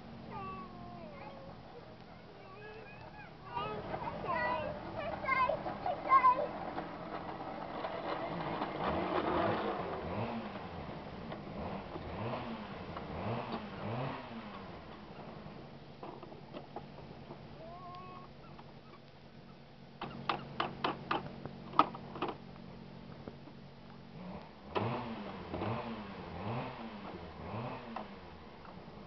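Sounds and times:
engine revving: 3.4 - 15.8, 24.1 - 29.0
sharp clicks and knocks: 5.0 - 10.7, 20.0 - 22.4.

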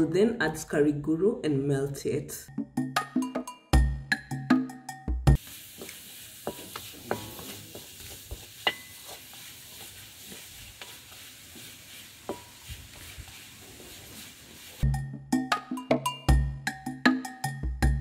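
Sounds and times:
music: 0.5 - 5.4, 14.8 - 18.0
sugar sizzling in a hot wok: 5.4 - 14.9
wooden spoon scraping a pan: 5.4 - 14.9.

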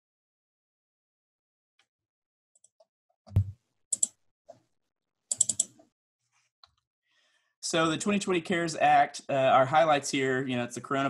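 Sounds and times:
keyboard keystrokes: 3.3 - 4.1
computer mouse clicking: 3.3 - 4.2, 5.3 - 5.8.

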